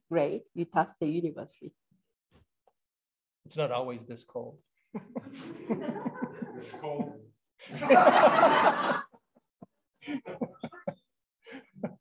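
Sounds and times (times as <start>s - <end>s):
group of people laughing: 4.9s - 12.0s.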